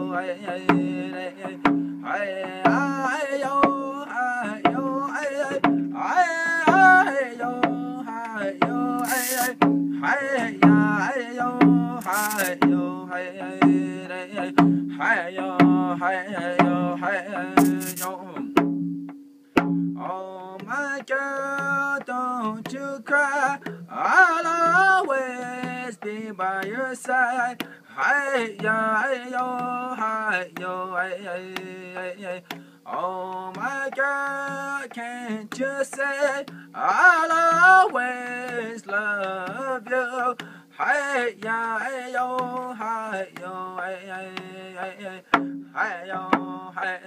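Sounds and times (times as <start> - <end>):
man singing: 0.0 - 18.6, 20.0 - 47.0
percussive beat: 0.0 - 47.0.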